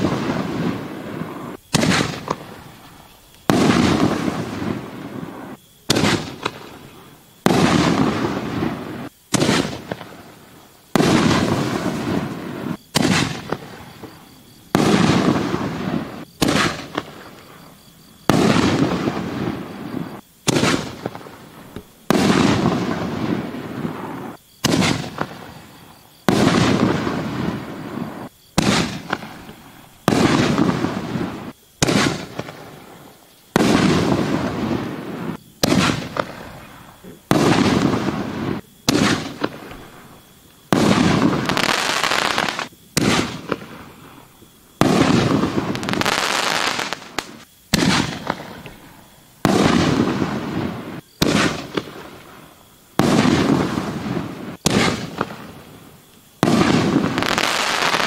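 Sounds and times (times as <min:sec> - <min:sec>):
firework shells bursting: 0:00.0 - 0:06.8, 0:33.5 - 0:43.7.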